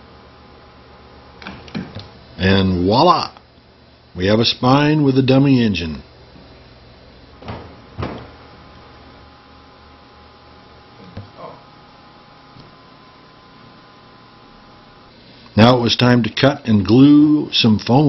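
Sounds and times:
room tone hum and hiss: 0.0s - 18.0s
sharp knocks: 7.4s - 8.4s.

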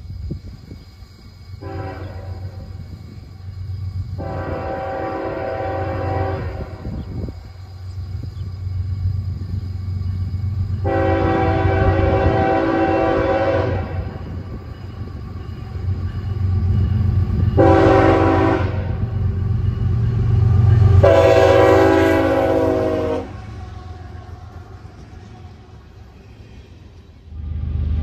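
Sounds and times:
train rumbling: 0.0s - 28.0s
locomotive air horn blasts: 1.6s - 2.6s, 4.2s - 6.9s, 10.8s - 14.2s, 17.6s - 19.1s, 20.8s - 23.6s.

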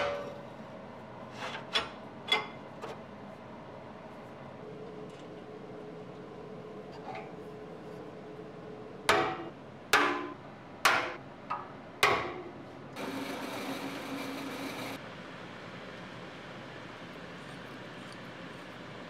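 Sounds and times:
machine whir: 13.0s - 15.0s.

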